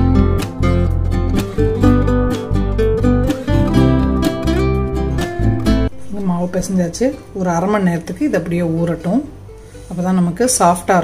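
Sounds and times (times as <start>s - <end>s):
sustained bass: 0.0s - 7.0s
acoustic guitar music: 0.0s - 11.0s.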